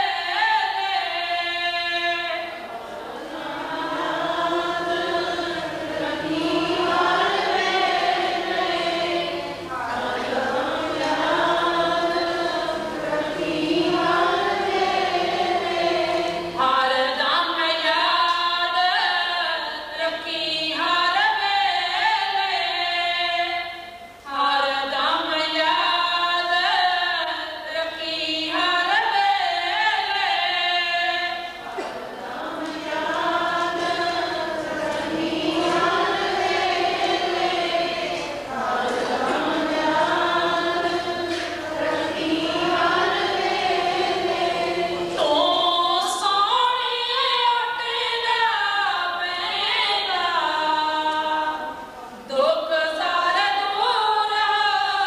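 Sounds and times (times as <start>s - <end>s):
group chanting in unison: 0.8s - 17.3s, 31.1s - 46.1s.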